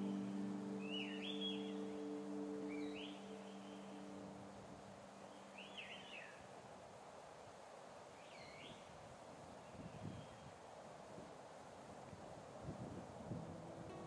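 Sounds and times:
songbird chirping: 0.0s - 6.6s.

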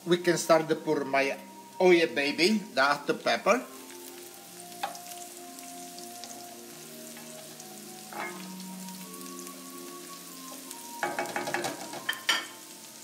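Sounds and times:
food sizzling in oil: 0.0s - 13.0s
wooden spoon clattering on pan: 11.0s - 12.6s.

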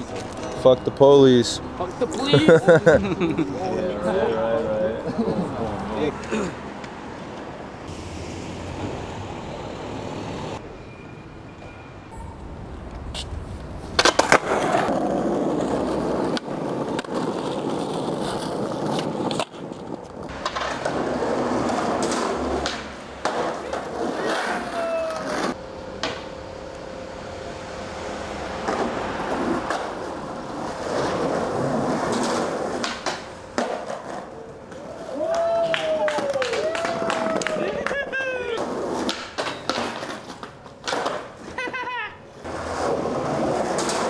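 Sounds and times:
skateboard wheels rolling on pavement: 0.0s - 10.7s, 12.4s - 44.0s
skateboard clacks: 14.0s - 26.3s, 28.7s - 44.0s.

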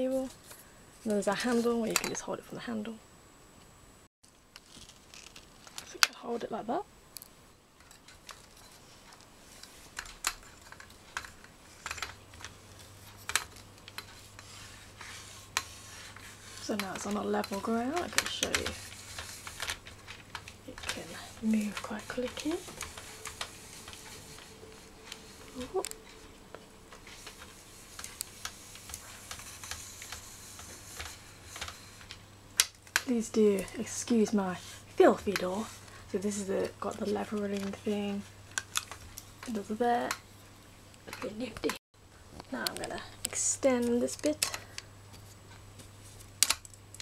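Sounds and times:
light rubbing: 14.0s - 32.2s.

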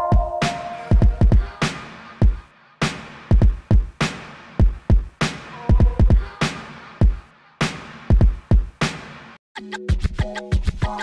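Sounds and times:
electronic beat music: 0.0s - 8.7s.

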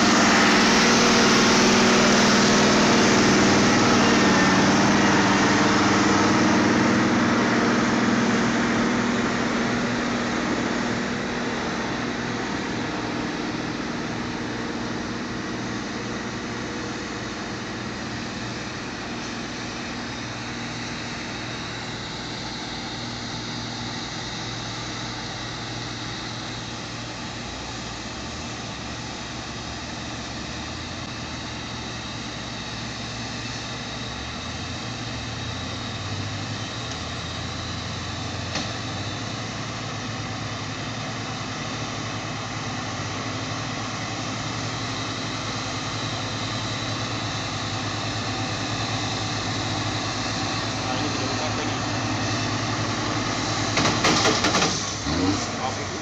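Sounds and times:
truck diesel engine running: 0.0s - 56.0s
sharp click: 53.8s - 54.8s.

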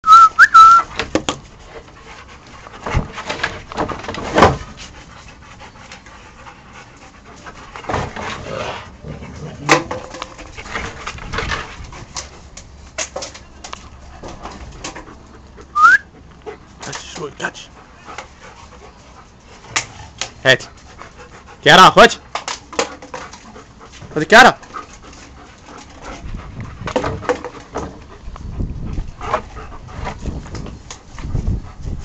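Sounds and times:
dogs panting: 0.9s - 32.0s.

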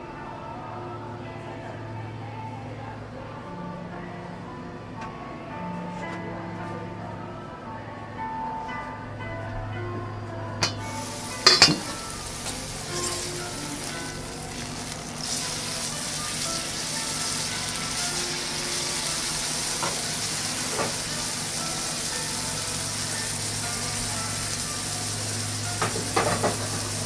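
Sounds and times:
steak sizzling on a griddle: 10.8s - 27.0s.

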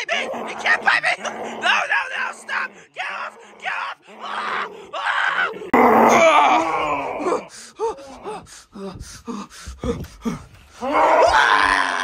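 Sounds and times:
person screaming: 4.3s - 7.5s, 10.8s - 12.0s
person gasping and grunting: 6.1s - 12.0s.

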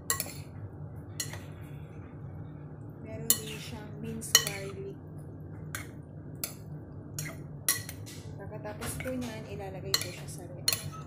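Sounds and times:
metal spoon clinking glass bowl: 10.0s - 11.0s.

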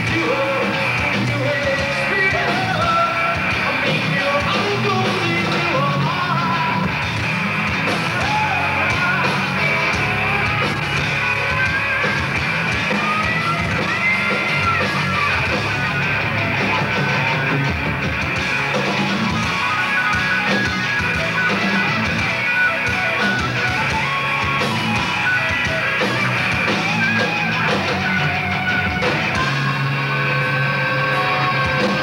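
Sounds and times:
person singing and shouting: 0.0s - 7.0s, 7.9s - 11.9s
bass guitar: 0.0s - 32.0s
drums: 0.0s - 32.0s
electric guitars: 0.0s - 32.0s.

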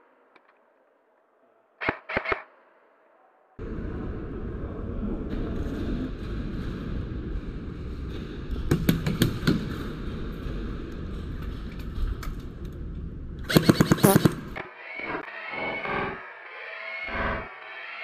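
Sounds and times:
airsoft gunfire: 1.8s - 2.5s, 13.4s - 14.6s
low rumble: 3.6s - 8.7s
sound effect: 13.4s - 18.0s.

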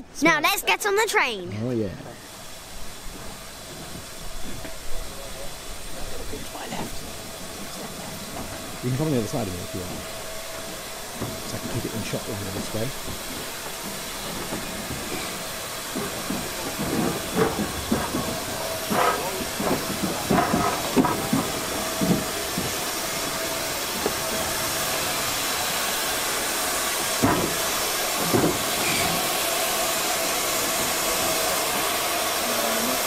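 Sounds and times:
steam locomotive hissing: 0.0s - 33.0s
clanks and knocks: 14.3s - 22.8s, 27.2s - 27.6s, 28.2s - 29.2s.

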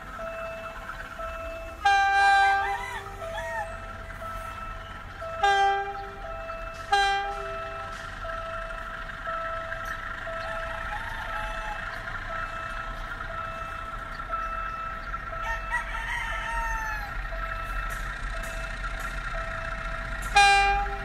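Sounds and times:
rooster crowing: 2.3s - 3.9s, 10.4s - 12.4s, 15.3s - 17.3s.

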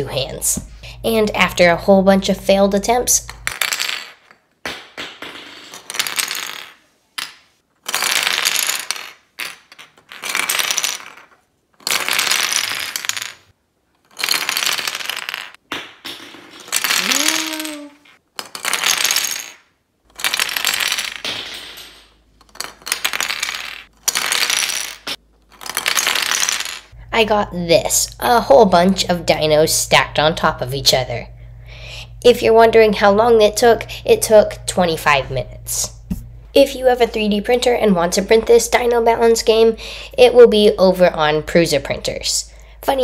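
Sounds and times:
plastic pieces clattering on glass: 16.5s - 27.0s.

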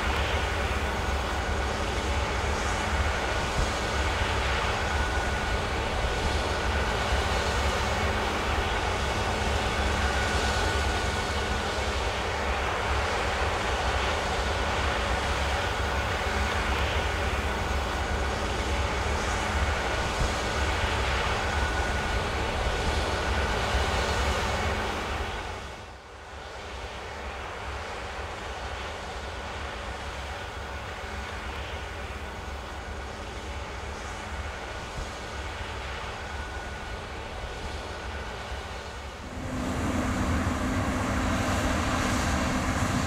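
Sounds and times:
combine harvester running: 33.3s - 43.0s.

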